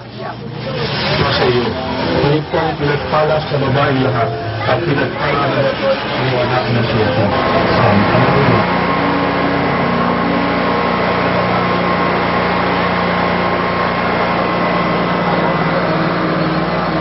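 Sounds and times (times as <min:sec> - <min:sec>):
small engine idling: 0:00.1 - 0:17.0.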